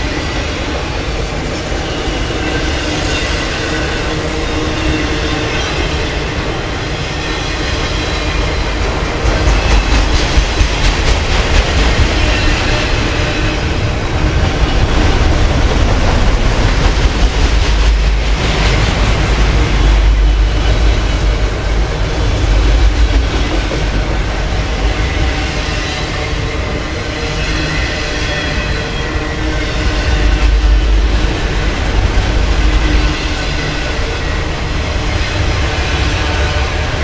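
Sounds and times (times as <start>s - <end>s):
freight cars rumbling on rails: 0.0s - 37.0s.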